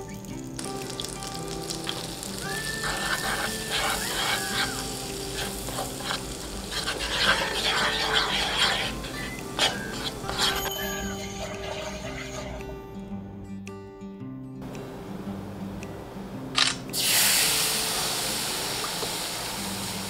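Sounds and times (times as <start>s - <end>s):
butter sizzling in a frying pan: 0.0s - 12.5s, 17.0s - 20.0s
wooden spoon scraping a pan: 1.8s - 12.9s.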